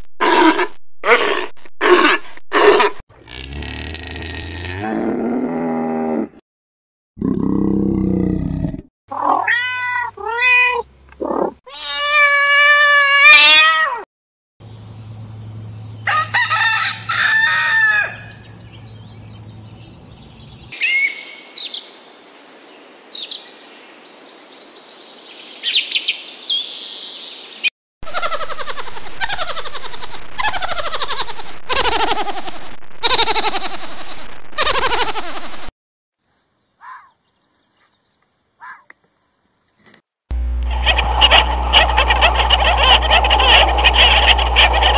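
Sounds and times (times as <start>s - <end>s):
animal grunting: 0.2s - 6.4s, 7.2s - 9.4s, 11.2s - 11.6s
rooster crowing: 16.0s - 18.4s.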